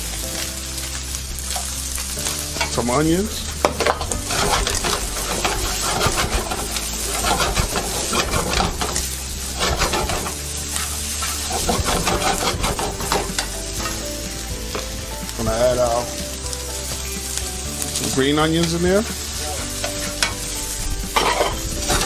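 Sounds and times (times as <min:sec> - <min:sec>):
food sizzling in a wok: 0:00.0 - 0:22.0
spatula scraping and tapping wok: 0:03.4 - 0:14.1, 0:18.6 - 0:22.0.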